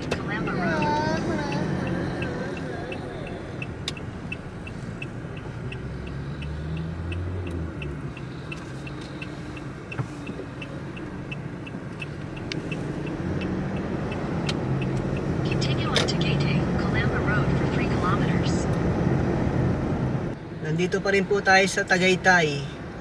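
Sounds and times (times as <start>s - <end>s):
turn signal ticking: 0.0s - 18.9s
engine and road noise: 0.0s - 23.0s.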